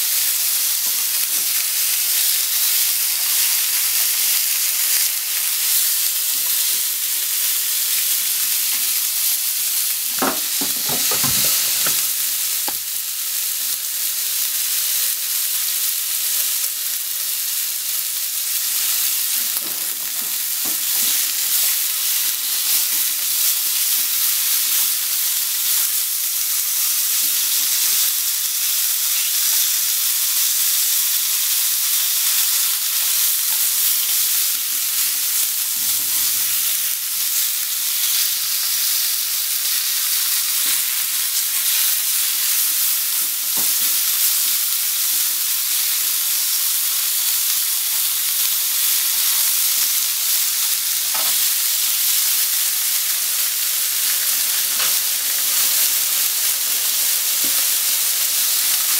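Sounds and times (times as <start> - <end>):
pork sizzling in a frying pan: 0.0 - 58.9
clatter of knocks: 10.1 - 12.1.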